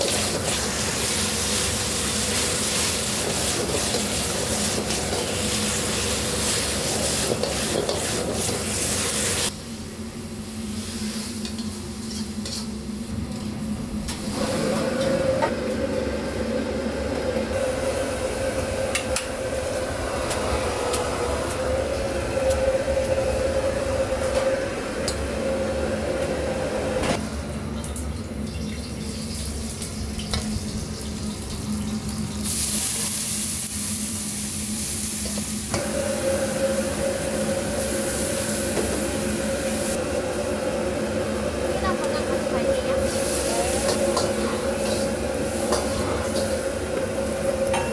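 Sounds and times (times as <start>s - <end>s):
steady hum: 12.7s - 27.8s.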